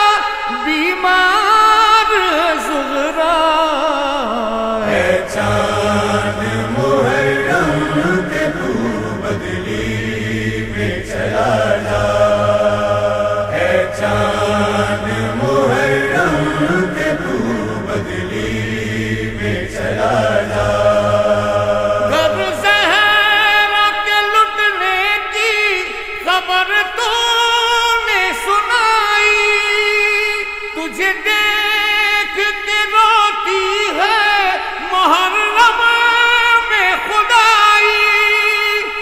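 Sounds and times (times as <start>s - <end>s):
wavering chant-like melody: 0.0s - 39.0s
steady low drone: 5.0s - 22.4s.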